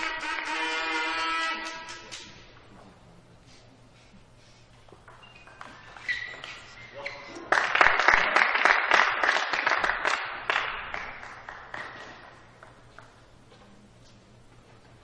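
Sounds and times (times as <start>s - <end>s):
spectators applauding: 7.5s - 12.4s.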